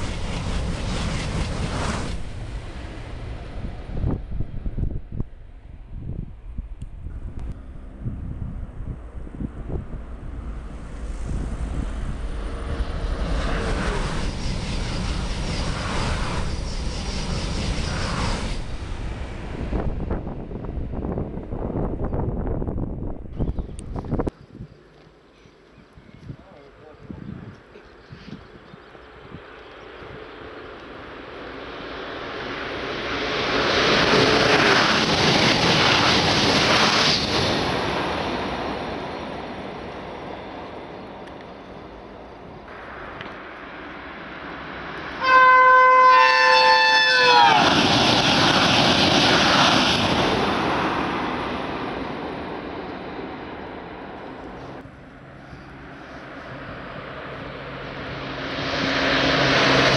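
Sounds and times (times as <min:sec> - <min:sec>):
high-speed train passing: 0:00.0 - 0:24.7, 0:25.6 - 0:59.9
wind buffeting microphone: 0:00.0 - 0:24.8, 0:25.8 - 0:30.5.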